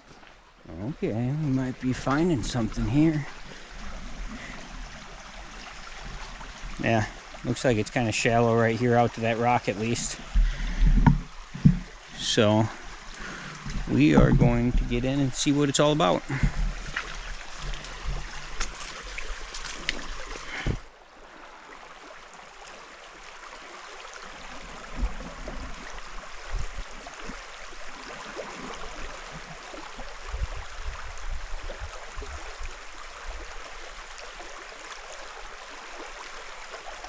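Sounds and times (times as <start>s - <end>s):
river water rushing: 0.0s - 37.0s
soft low thumps: 10.1s - 12.1s, 12.7s - 15.4s, 16.1s - 18.8s
sharp knocks: 10.4s - 12.0s.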